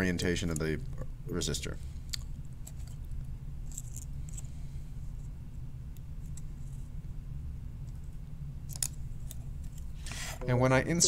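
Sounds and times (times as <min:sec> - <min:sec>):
low hum: 0:09.2 - 0:11.0.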